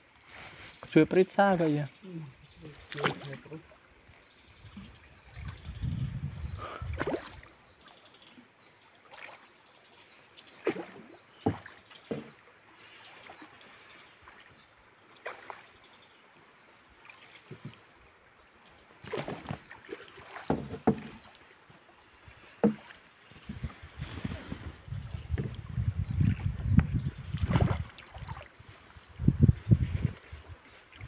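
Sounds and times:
pole splashing in water: 0:02.9 - 0:03.4, 0:06.9 - 0:07.5, 0:10.5 - 0:12.4, 0:19.0 - 0:21.4, 0:27.3 - 0:28.4.

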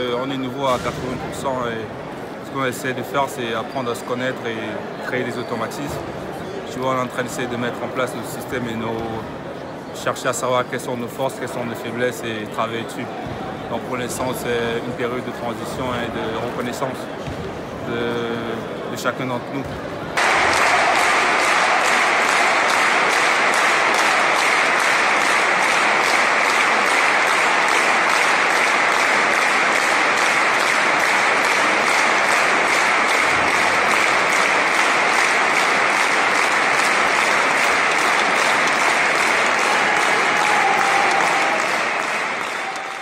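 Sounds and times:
large crowd applauding: 0:20.2 - 0:43.0.

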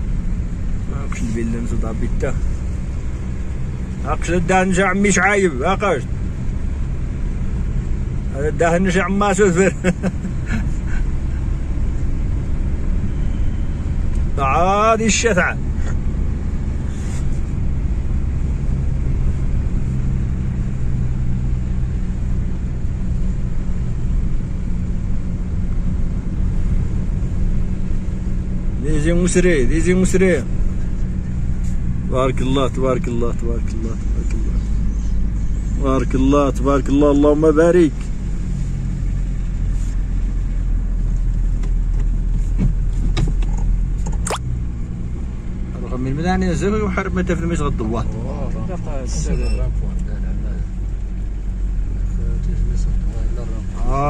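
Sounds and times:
vehicle engine humming: 0:00.0 - 0:54.0
short squeak: 0:49.2 - 0:49.8.

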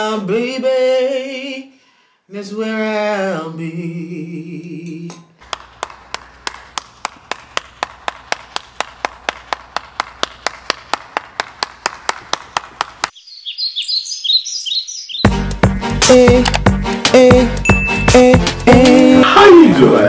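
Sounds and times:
sharp clicks: 0:16.3 - 0:16.8.

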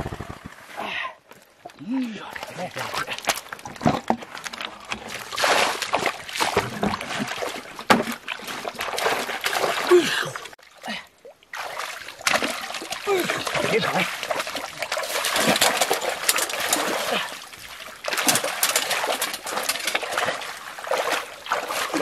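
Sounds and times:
feet wading in muddy water: 0:01.3 - 0:22.0
water poured from bucket: 0:02.4 - 0:09.9, 0:11.6 - 0:22.0.

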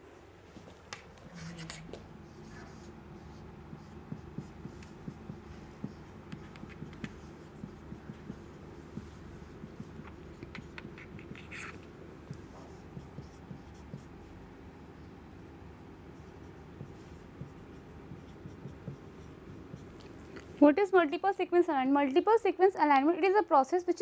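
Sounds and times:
marker squeaking on whiteboard: 0:01.3 - 0:11.8.

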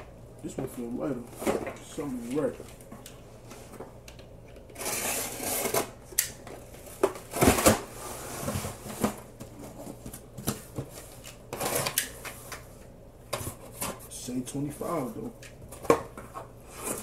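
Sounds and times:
box cutter slitting tape: 0:04.8 - 0:05.9.

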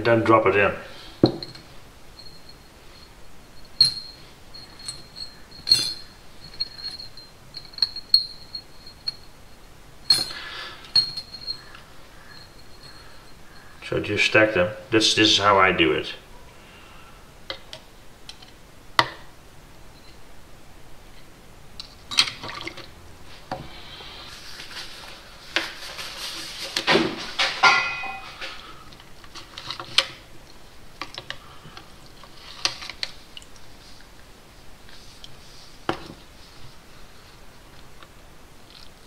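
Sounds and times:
metal parts clinking in cup: 0:01.2 - 0:09.3, 0:10.1 - 0:13.8, 0:25.9 - 0:28.7
small liquid sounds: 0:30.4 - 0:34.3, 0:38.6 - 0:39.0.

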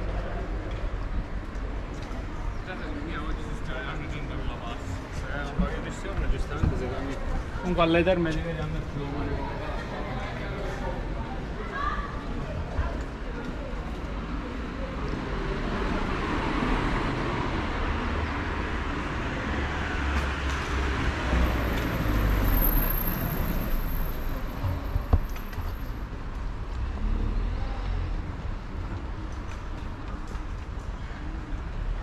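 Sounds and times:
cars passing: 0:14.1 - 0:30.7.

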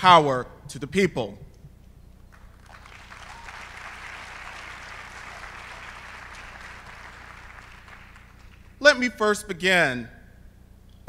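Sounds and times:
audience applauding: 0:02.3 - 0:08.8.

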